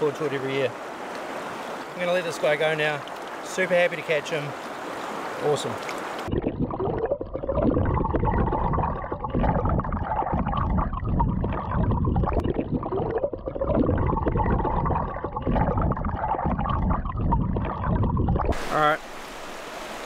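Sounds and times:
muffled underwater river rumbling: 0:05.8 - 0:20.0.

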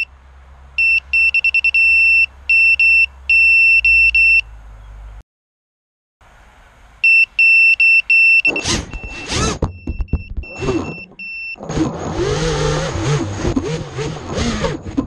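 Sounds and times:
short high electronic beeps: 0:00.8 - 0:04.4, 0:07.0 - 0:11.6
quadcopter motors spinning: 0:12.1 - 0:15.0.

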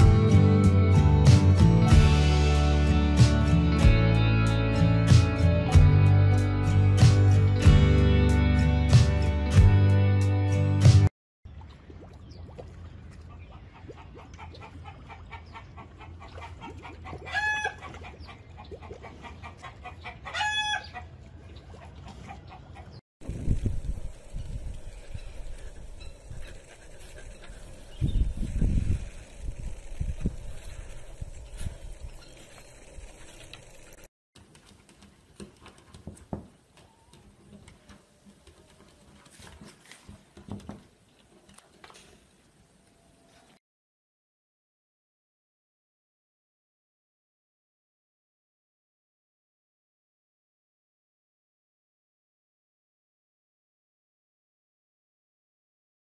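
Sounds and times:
soft irregular clucking: 0:13.2 - 0:23.0.

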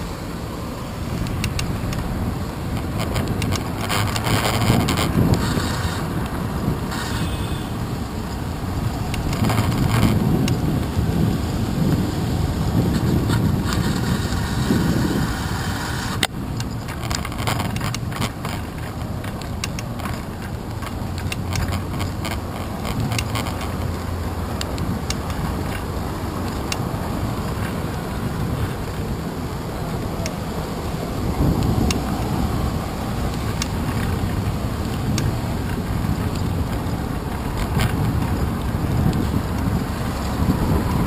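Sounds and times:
motor traffic: 0:00.0 - 0:41.0
wind and road noise: 0:00.0 - 0:41.0
sharp clicks and knocks: 0:01.1 - 0:02.1, 0:02.7 - 0:06.4, 0:08.3 - 0:10.6, 0:16.2 - 0:27.8.

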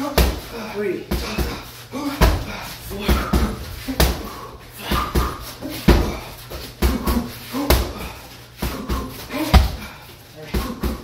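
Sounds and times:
gloves punching heavy bag: 0:00.0 - 0:11.0.

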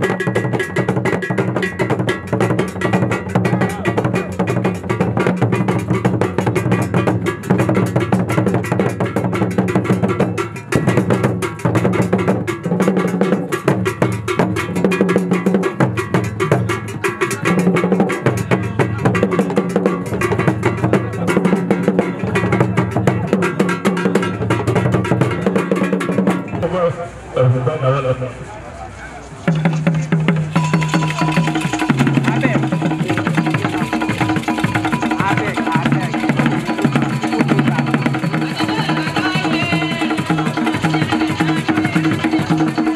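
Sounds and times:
drum ensemble playing dance music: 0:00.0 - 0:27.8, 0:29.4 - 0:42.9
steady clicking pattern: 0:29.5 - 0:42.9.

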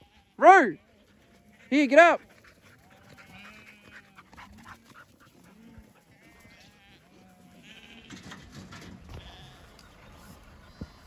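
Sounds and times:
flock of sheep bleating: 0:00.0 - 0:02.0, 0:02.8 - 0:04.4, 0:05.4 - 0:08.3, 0:09.1 - 0:11.0.

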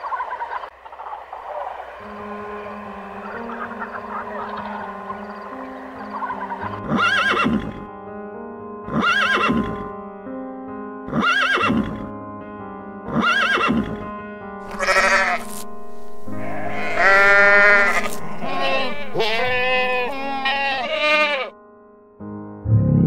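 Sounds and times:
arching animal calls: 0:00.0 - 0:07.9, 0:14.7 - 0:15.6, 0:16.3 - 0:21.5
background music: 0:00.5 - 0:23.0
goat bleating: 0:14.7 - 0:15.6, 0:16.3 - 0:21.5.

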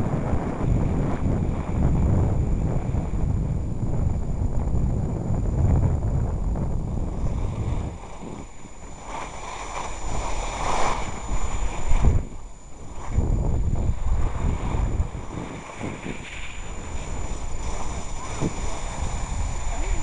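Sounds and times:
wind buffeting microphone: 0:00.0 - 0:20.0
skis scraping on packed snow: 0:07.1 - 0:12.2, 0:13.8 - 0:20.0.

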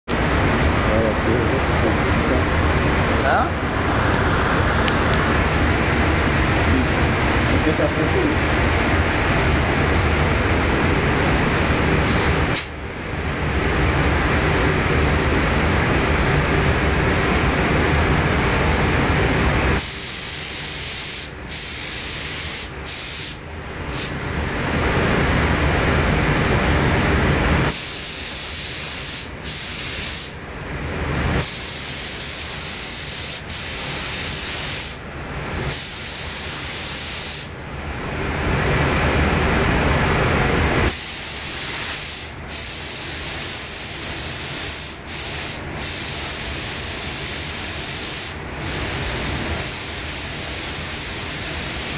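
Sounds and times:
deep rush of air: 0:00.1 - 0:51.9
paint spray gun hissing: 0:19.8 - 0:24.1, 0:27.7 - 0:30.4, 0:31.4 - 0:35.0, 0:35.7 - 0:37.5, 0:40.9 - 0:51.9.

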